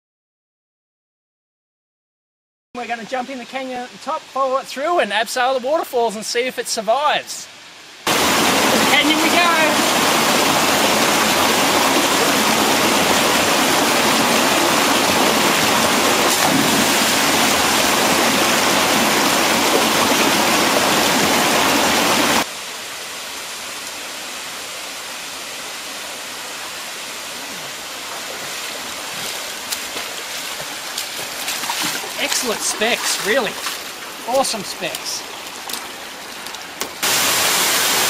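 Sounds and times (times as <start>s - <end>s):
flowing creek: 2.8s - 38.0s
rushing water: 8.0s - 38.0s
wading splashes: 8.1s - 22.4s, 27.5s - 37.4s.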